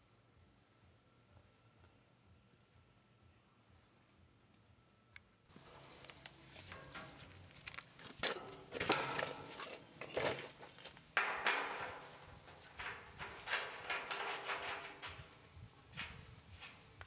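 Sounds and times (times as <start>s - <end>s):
metallic scrapes and clinks: 5.5s - 16.8s.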